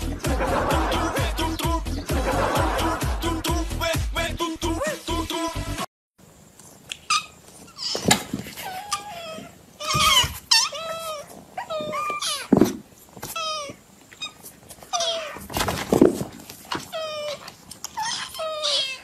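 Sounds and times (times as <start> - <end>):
kittens meowing: 7.1 - 12.6, 13.2 - 15.5, 16.7 - 19.0.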